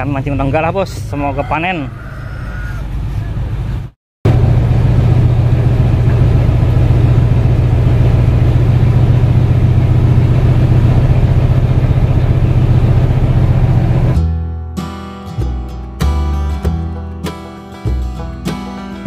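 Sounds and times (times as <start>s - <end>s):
engine idling: 3.5s - 14.3s.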